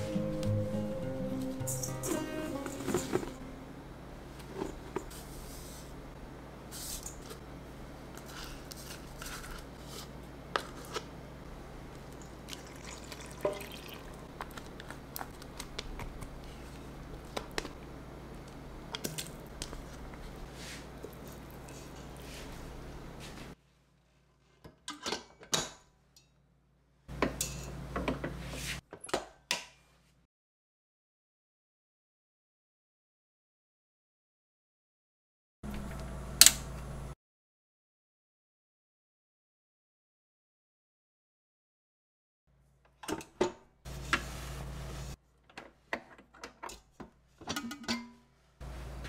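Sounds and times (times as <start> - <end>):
low hum: 0.0 - 4.4.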